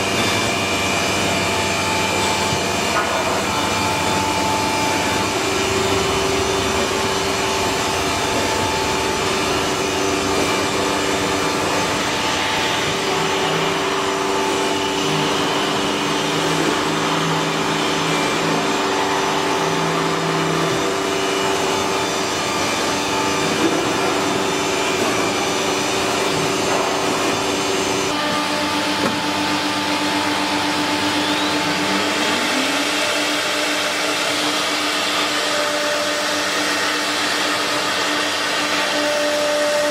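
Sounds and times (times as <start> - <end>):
router cutting wood: 0.0 - 39.9
router spindle whine: 0.0 - 39.9.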